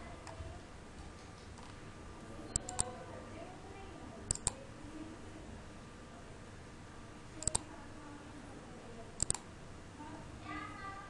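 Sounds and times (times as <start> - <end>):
computer mouse button clicks: 4.3 - 4.6, 7.4 - 7.7, 9.2 - 9.4.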